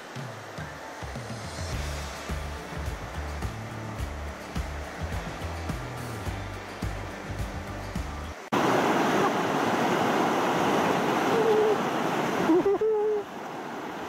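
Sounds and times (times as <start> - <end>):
river rushing over stones: 0.0 - 14.0
background music: 0.2 - 8.5.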